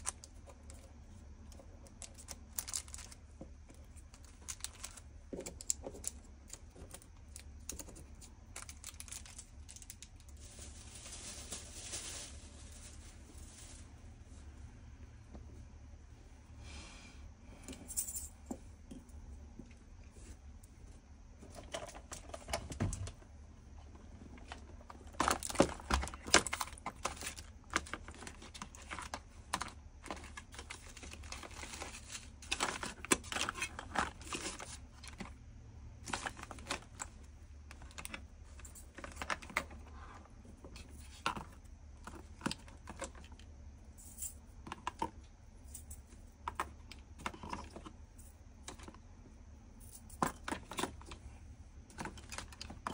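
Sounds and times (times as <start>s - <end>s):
plastic bottles clicking and clattering: 24.4s - 35.3s.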